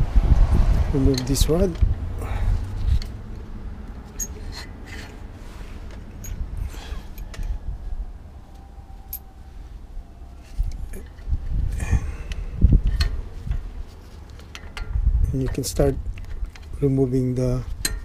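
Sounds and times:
metal clicks of pliers and pins: 4.2 - 5.2, 17.8 - 18.0.

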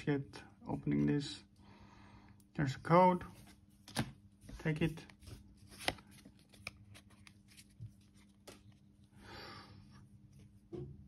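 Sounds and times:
cards rustling: 3.2 - 9.0.

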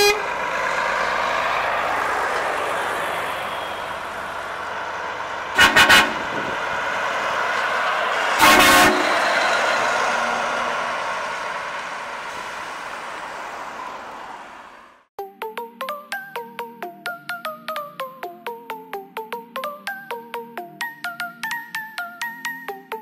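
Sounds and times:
air horn toots: 0.0 - 0.4, 5.5 - 6.6, 8.3 - 10.3
truck passing close: 0.0 - 15.1.

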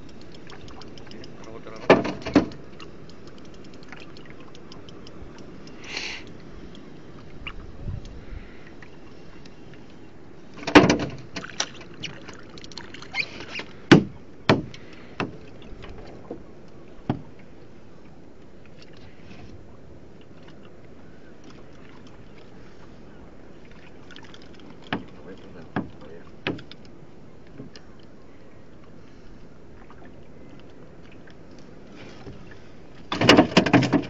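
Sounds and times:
water noise: 0.0 - 34.0
wind: 0.0 - 34.0
knocks and thumps on boat deck: 1.8 - 2.6, 10.6 - 11.6, 13.9 - 17.4, 24.8 - 26.7, 33.1 - 34.0.

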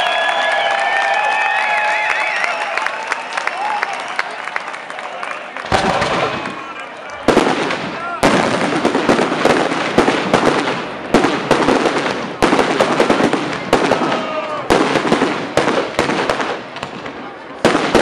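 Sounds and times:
fireworks crackling: 5.5 - 18.0
fireworks bangs: 5.6 - 18.0.

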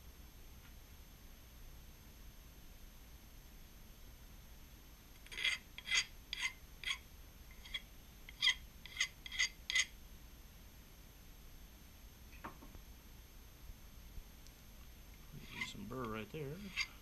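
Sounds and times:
hand file scraping metal: 5.3 - 7.0, 7.6 - 9.9, 15.4 - 17.0.

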